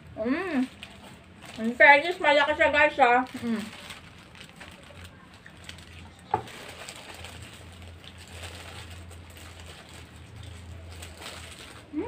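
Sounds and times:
paper wrappers rustling: 0.2s - 12.0s
chewing food: 3.6s - 11.8s.

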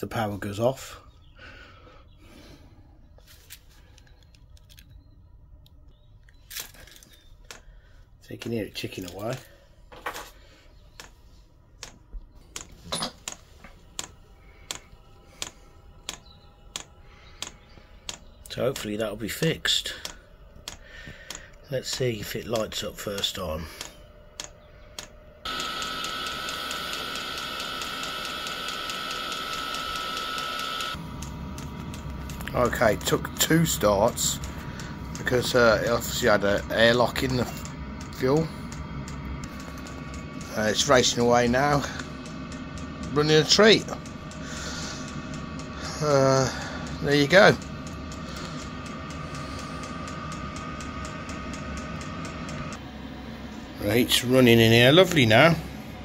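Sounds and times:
heater humming: 0.0s - 56.0s
fuel pump ticking: 19.9s - 52.8s.

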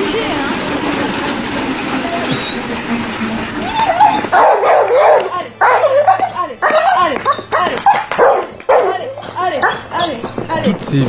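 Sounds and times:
dog yelping and whining: 3.6s - 10.6s.

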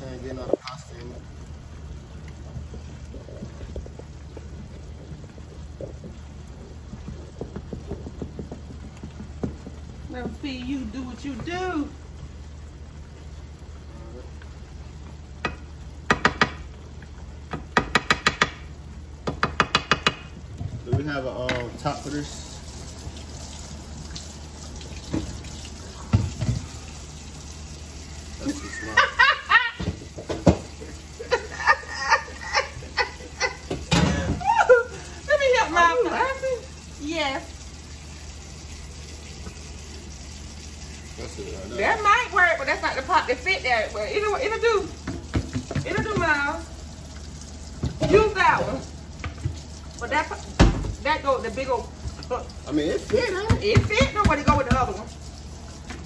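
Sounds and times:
sauce sizzling in a skillet: 0.0s - 56.0s
cookware knocking: 19.2s - 20.3s.

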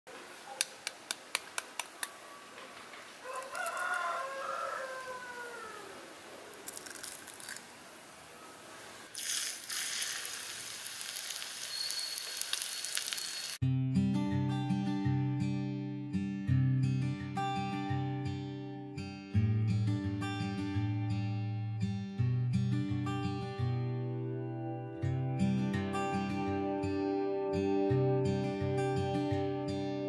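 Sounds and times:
rooster crowing: 3.2s - 6.6s
steady hiss: 6.0s - 13.6s
acoustic guitar music: 13.6s - 30.0s.

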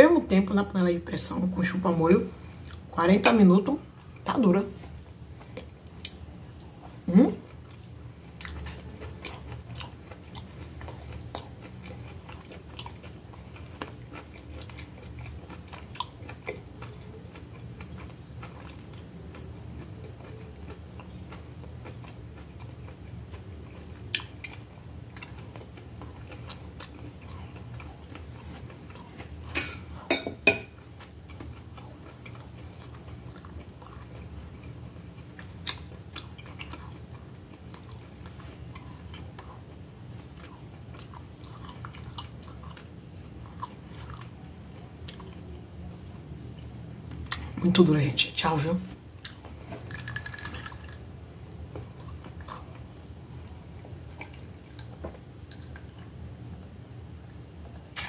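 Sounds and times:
person chewing beef: 2.4s - 2.9s, 3.9s - 45.6s, 49.1s - 58.0s
cutlery clinking on plate: 29.6s - 30.7s.

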